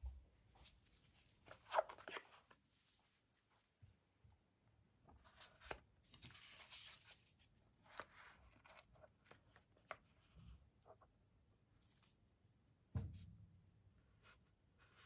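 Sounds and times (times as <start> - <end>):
soft rustle: 0.5 - 3.8.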